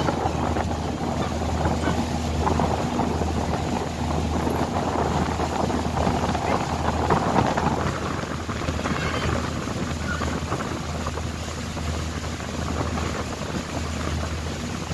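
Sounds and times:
boat engine droning: 0:00.0 - 0:14.9
wind on microphone: 0:00.0 - 0:14.9.

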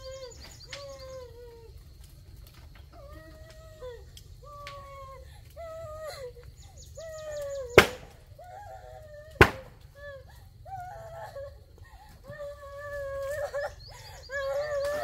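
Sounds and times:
chickens calling: 0:00.0 - 0:01.4, 0:06.5 - 0:08.4, 0:09.3 - 0:09.8
sharp chopping strikes: 0:07.8 - 0:08.1, 0:09.4 - 0:09.7.

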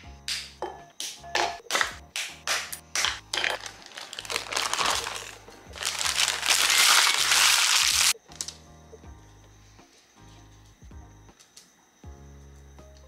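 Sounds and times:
baking paper crinkling: 0:03.3 - 0:08.2.

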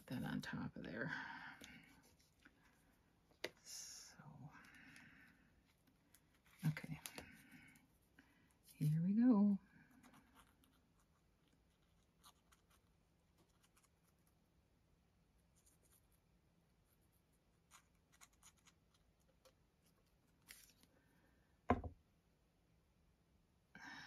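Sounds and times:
short thump: 0:21.7 - 0:22.0.

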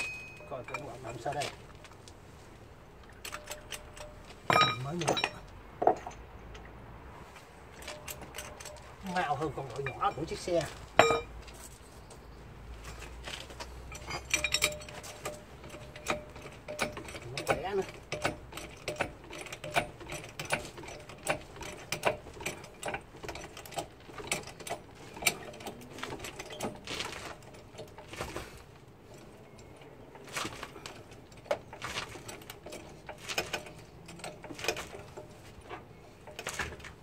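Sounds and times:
floor jack clicking and clanking: 0:09.8 - 0:11.3, 0:13.9 - 0:29.6, 0:30.2 - 0:37.0.

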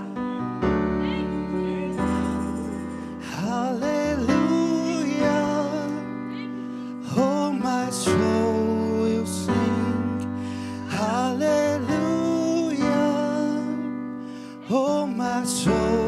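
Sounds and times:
held instrumental chords: 0:00.0 - 0:13.8
person singing: 0:00.0 - 0:16.0.

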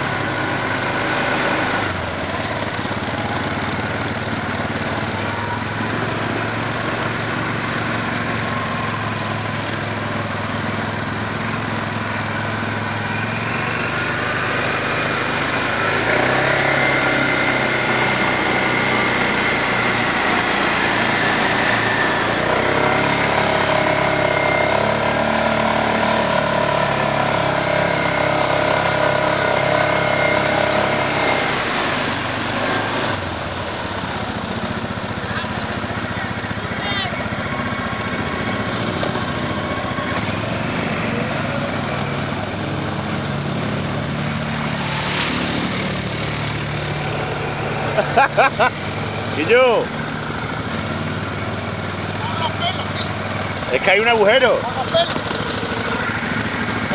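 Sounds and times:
quad bike engine under load: 0:00.0 - 0:56.9
water rushing and splashing: 0:29.8 - 0:56.9.

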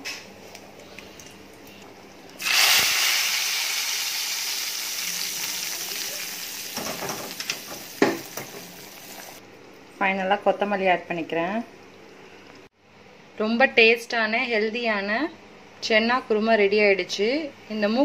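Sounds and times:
loud sizzle of hot oil: 0:02.4 - 0:09.4.

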